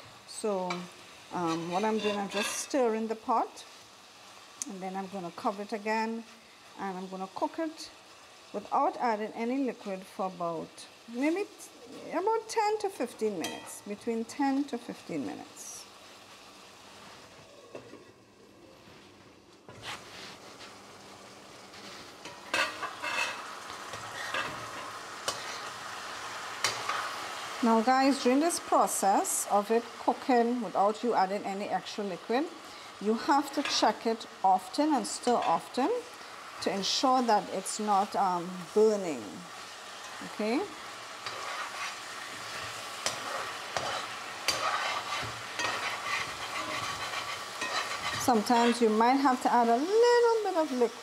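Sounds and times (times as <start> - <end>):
chicken wings sizzling in a pot: 0.0 - 51.0
metal spoon scraping a pot: 1.4 - 2.8, 22.2 - 23.4, 24.0 - 24.6, 41.2 - 48.8.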